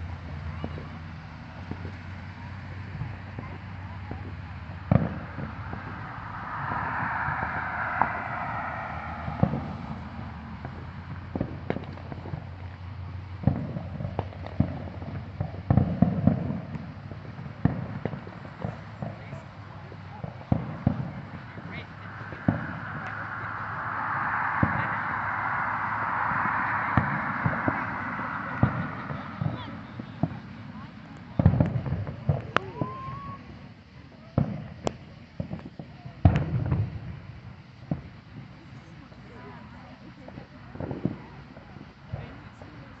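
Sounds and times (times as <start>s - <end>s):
low rumble: 4.5s - 11.3s, 20.6s - 30.8s
fireworks booming: 20.3s - 30.8s.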